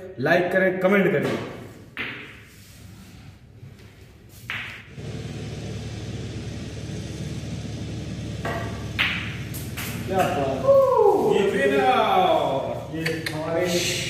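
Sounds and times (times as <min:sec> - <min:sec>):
snooker balls clicking: 0:04.5 - 0:05.0, 0:08.4 - 0:10.4
low steady rumble: 0:04.9 - 0:11.0.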